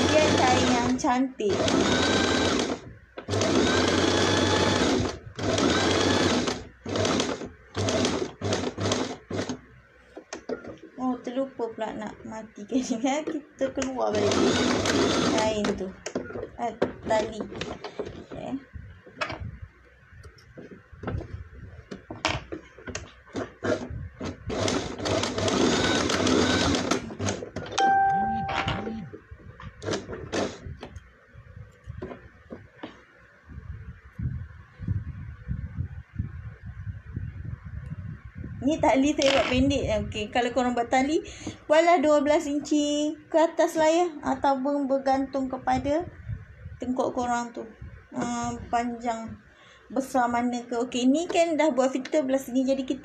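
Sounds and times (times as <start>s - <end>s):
sewing machine stitching: 0.0s - 9.6s, 14.1s - 16.4s, 23.4s - 27.8s, 29.8s - 30.6s.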